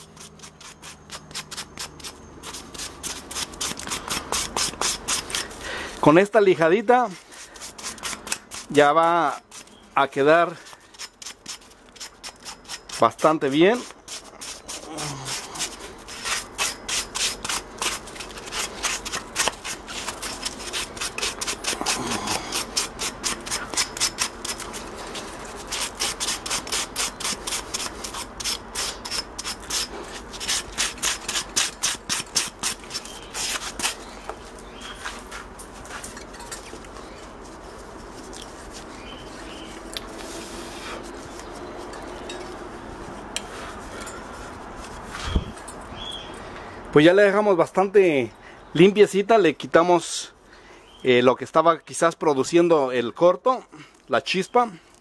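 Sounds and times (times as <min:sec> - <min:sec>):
sandpaper rubbing back and forth: 0:00.0 - 0:36.1, 0:37.2 - 0:42.0, 0:42.7 - 0:45.6.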